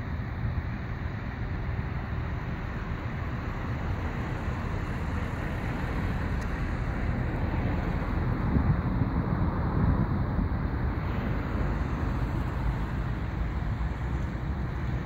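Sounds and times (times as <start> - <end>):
distant propeller engines rumbling: 0.0 - 15.0
wind buffeting microphone: 0.0 - 15.0.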